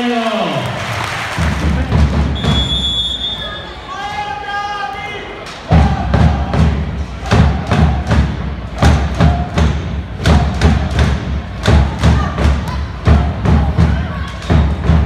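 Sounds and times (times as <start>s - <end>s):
drum beaten in steady rhythm: 1.4s - 2.8s, 5.7s - 15.0s.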